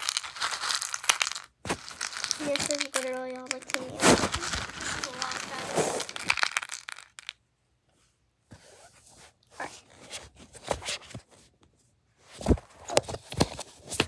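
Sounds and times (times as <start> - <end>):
candy wrappers rustling in bowl: 0.0 - 7.3.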